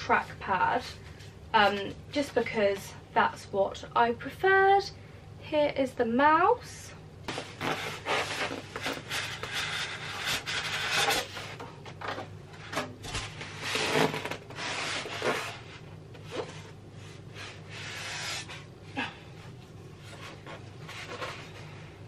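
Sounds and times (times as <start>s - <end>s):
cardboard rubbing and scraping: 7.3s - 11.6s, 12.6s - 18.7s, 20.0s - 21.8s.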